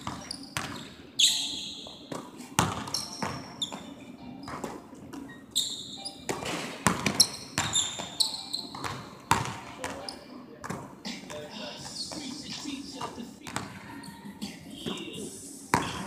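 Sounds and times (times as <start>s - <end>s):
basketballs bouncing on hardwood: 0.0s - 0.9s, 1.8s - 4.8s, 6.3s - 10.0s, 10.6s - 11.4s, 13.0s - 13.8s, 15.7s - 16.0s
sneaker squeaks: 0.0s - 10.8s, 11.8s - 14.2s.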